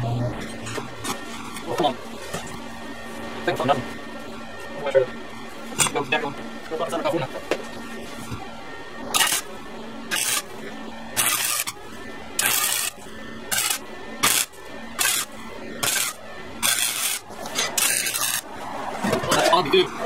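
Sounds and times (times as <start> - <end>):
welding arc crackling: 9.1 - 19.0.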